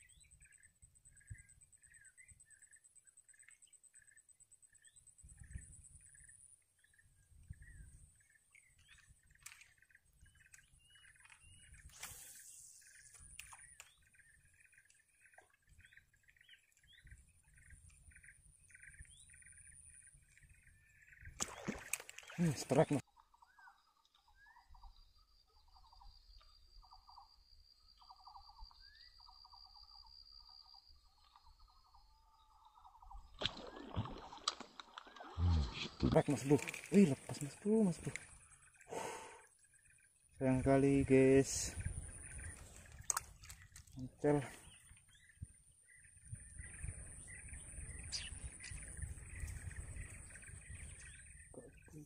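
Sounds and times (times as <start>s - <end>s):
insect trills: 0.0s - 51.5s
birds chirping: 0.0s - 52.0s.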